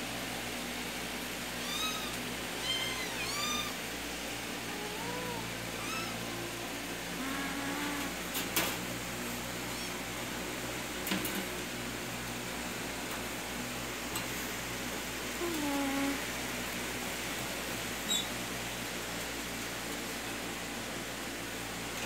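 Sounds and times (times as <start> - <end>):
kittens meowing: 1.6 - 3.8, 4.6 - 8.2.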